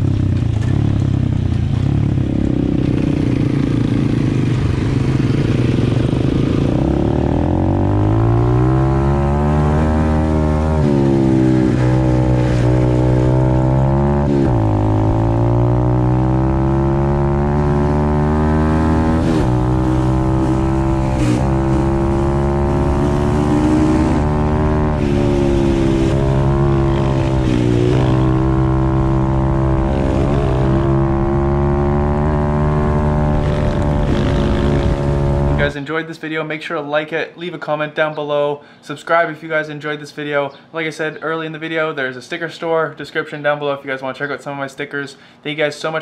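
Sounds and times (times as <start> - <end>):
motorbike engine revving high: 0.0 - 35.8.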